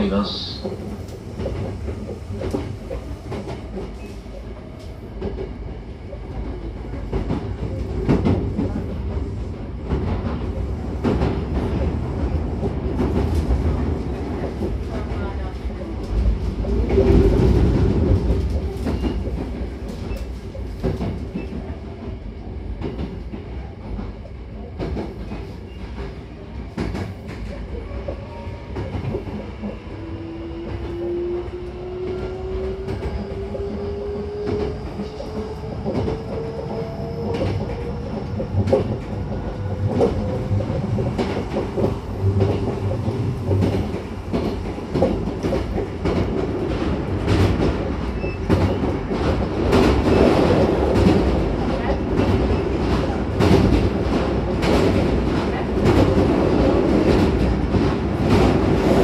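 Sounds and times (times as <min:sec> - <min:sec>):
train wheels rumbling on rails: 0:00.0 - 0:59.0.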